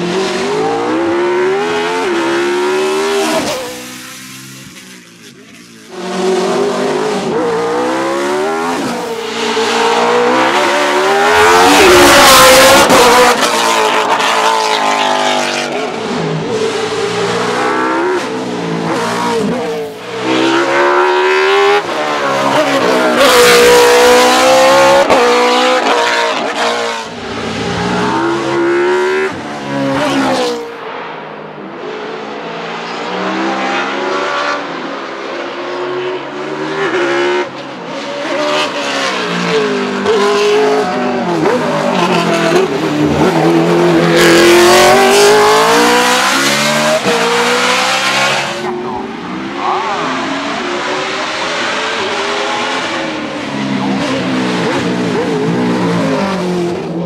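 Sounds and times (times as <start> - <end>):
racing car engine revving: 35.6 - 57.0.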